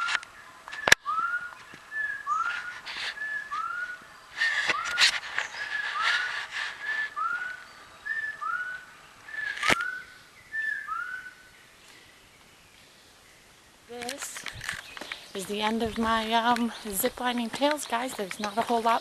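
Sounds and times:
whistled animal calls: 0.0 - 11.5
sharp clicks: 9.5 - 10.0, 13.9 - 18.9.

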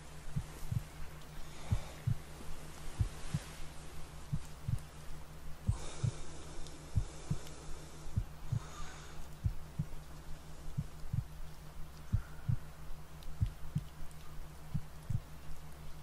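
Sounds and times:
low steady tone hum: 0.0 - 16.0
slow heartbeat: 0.3 - 3.6, 4.2 - 5.0, 5.6 - 6.3, 6.9 - 14.0, 14.7 - 15.3
soft breath: 0.4 - 11.0, 12.0 - 12.8.

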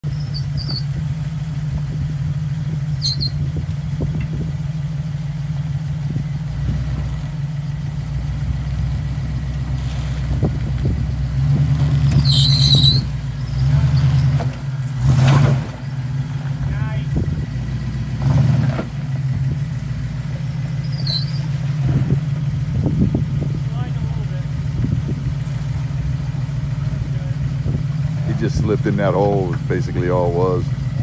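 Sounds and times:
high squeaks: 0.0 - 1.0, 3.0 - 3.4, 12.0 - 14.5, 20.8 - 21.6
suv engine running: 0.0 - 31.0.

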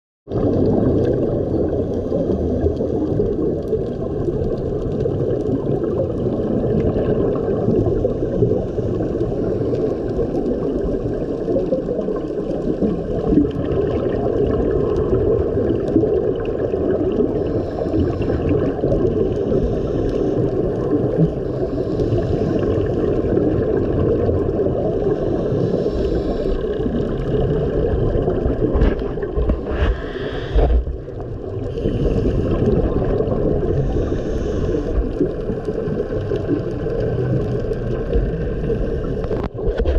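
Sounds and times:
muffled underwater rushing: 0.3 - 39.9
regulator bubbles hissing: 0.3 - 39.9.

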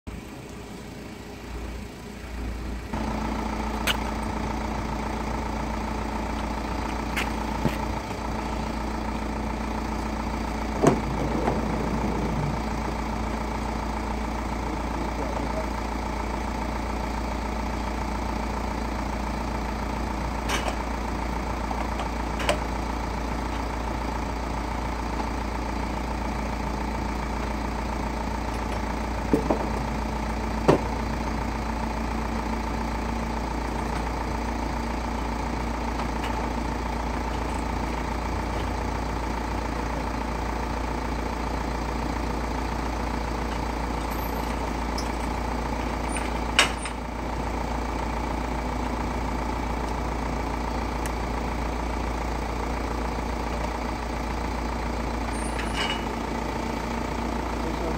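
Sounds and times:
wheelchair lift mechanical hum: 2.9 - 15.9
lift mechanism clunks: 10.7 - 13.2.

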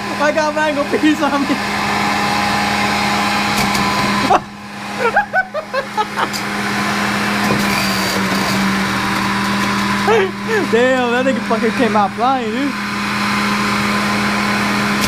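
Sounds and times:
juicer motor whirring: 0.0 - 15.0.

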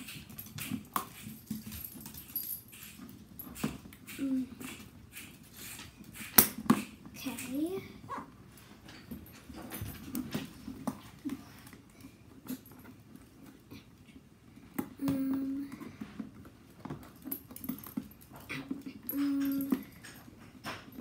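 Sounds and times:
dog whimper: 18.5 - 20.0.

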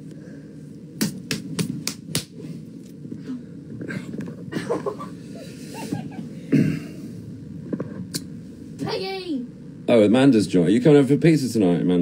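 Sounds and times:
hands slapping together: 1.0 - 2.4.

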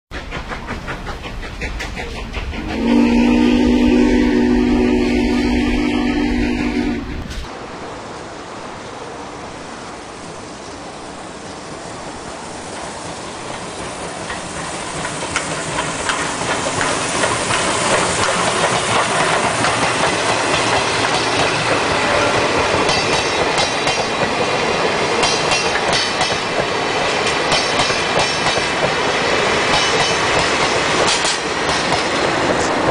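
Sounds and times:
train wheels clattering over rail joints: 0.1 - 3.1, 12.6 - 32.9
diesel locomotive passing: 0.1 - 32.9.

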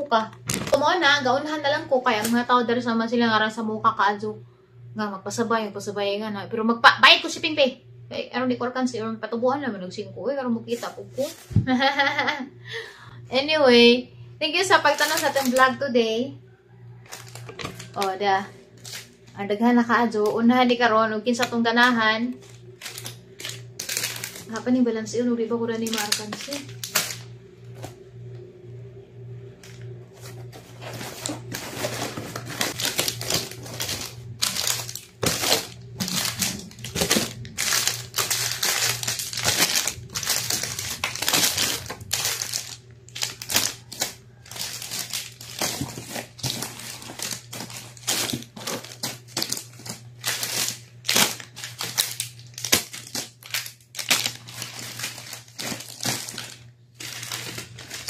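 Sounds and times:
low steady hum: 0.0 - 58.0
plastic wrappers crinkling: 0.2 - 2.5, 14.7 - 15.8, 17.0 - 19.5, 21.3 - 24.8, 25.7 - 28.0, 29.6 - 58.0.

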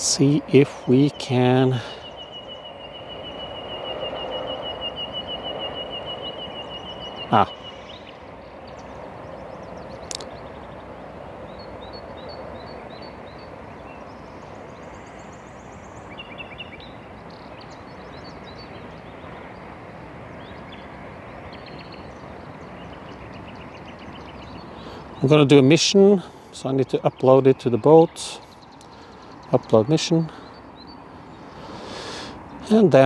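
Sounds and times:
outdoor background rush: 0.0 - 33.0
small birds chirping: 0.0 - 33.0
sharp click: 10.0 - 10.3.

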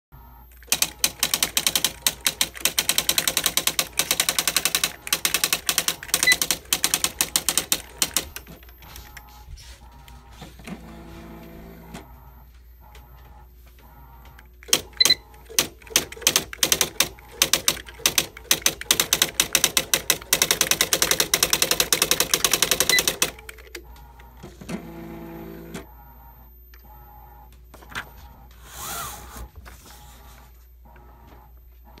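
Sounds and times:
typewriter mechanical whirring: 0.5 - 9.3, 14.3 - 25.9, 27.8 - 30.1
typewriter clacking: 0.6 - 8.7, 14.6 - 23.8.

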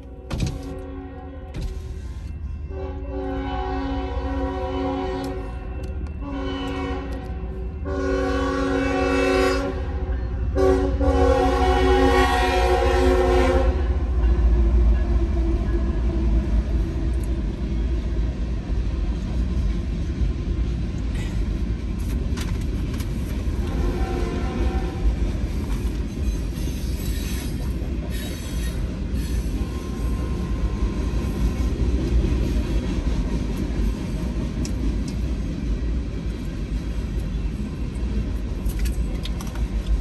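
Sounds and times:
locomotive horn blasts: 0.0 - 2.0, 2.6 - 14.1, 23.6 - 25.1
train rumbling past: 0.0 - 40.0.

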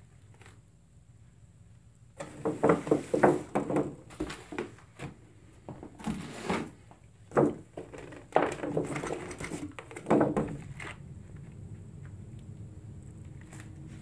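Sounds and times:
tool trays scraping and knocking: 2.2 - 4.8, 5.7 - 10.7.

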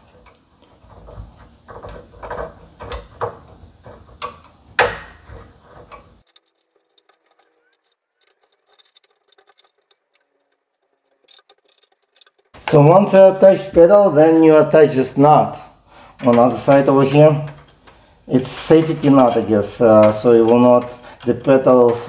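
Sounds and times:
metal clicks and knocks: 0.0 - 12.6.

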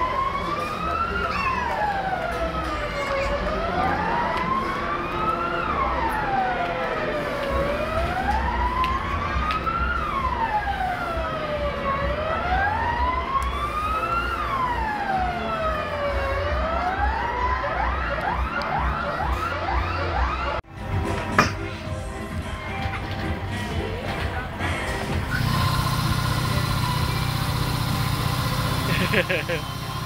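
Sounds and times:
siren wailing: 0.0 - 20.6.

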